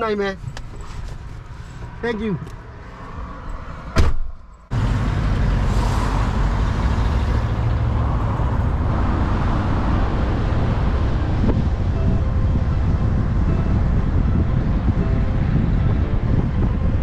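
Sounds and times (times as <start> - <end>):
truck engine and road noise: 0.0 - 17.0
sharp thump: 4.0 - 4.4.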